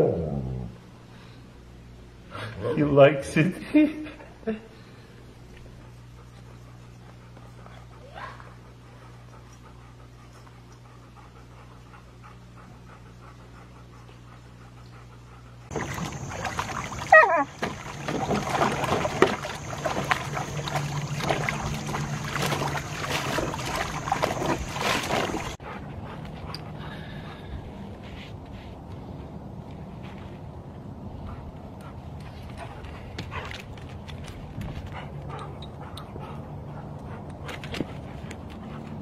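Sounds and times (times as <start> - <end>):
low steady hum: 0.0 - 39.0
dog splashing water in a pool: 15.7 - 25.6.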